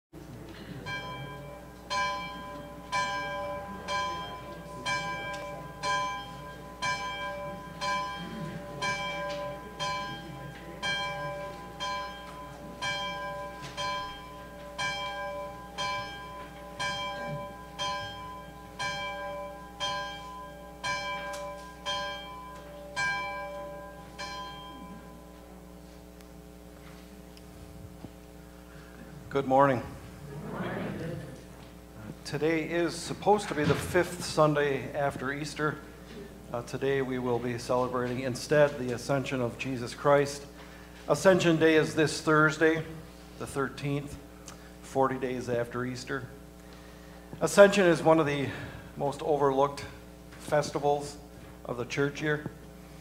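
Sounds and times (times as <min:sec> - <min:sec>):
church bell tolling: 0:00.6 - 0:25.8.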